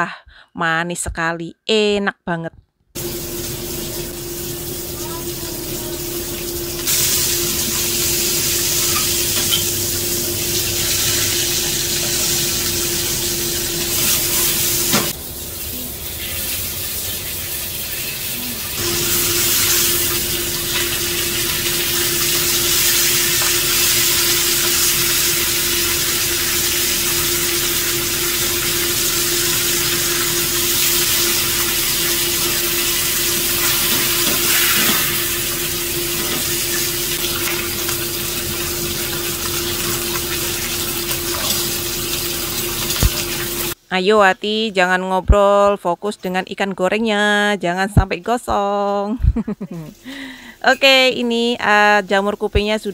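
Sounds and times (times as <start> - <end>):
fish frying in hot oil: 3.0 - 43.8.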